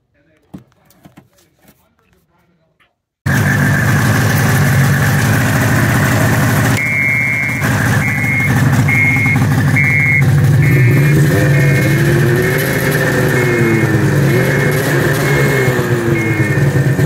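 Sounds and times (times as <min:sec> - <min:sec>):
snowmobile engine idling: 0:03.3 - 0:17.0
short high beeps: 0:06.8 - 0:16.7
wavering high tone: 0:06.8 - 0:16.8.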